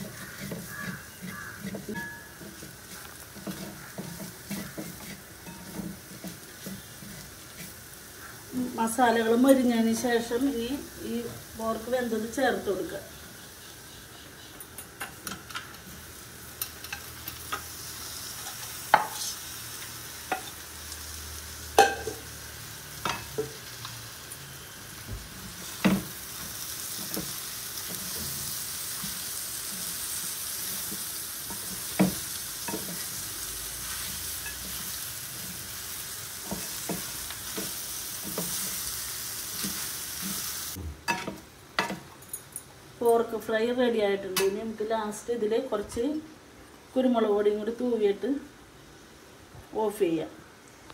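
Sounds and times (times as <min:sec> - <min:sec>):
meat sizzling in a pan: 0:00.0 - 0:14.5, 0:15.1 - 0:40.8.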